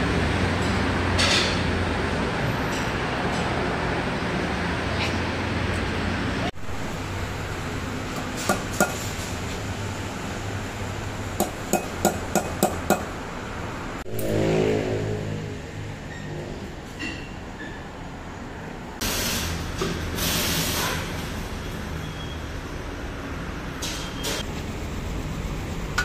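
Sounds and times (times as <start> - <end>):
vehicle rumble: 0.0 - 26.0
workshop background: 0.0 - 26.0
hammer striking metal: 11.4 - 13.1.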